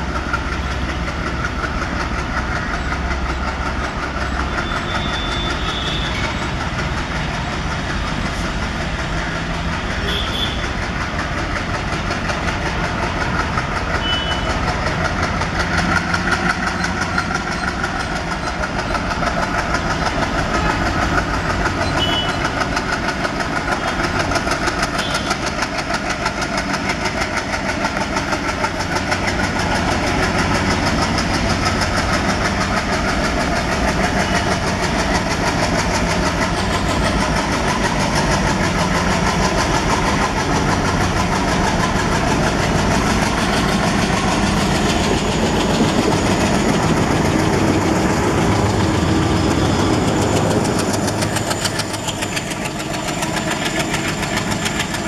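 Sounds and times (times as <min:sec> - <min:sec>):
diesel locomotive engine: 0:00.0 - 0:55.0.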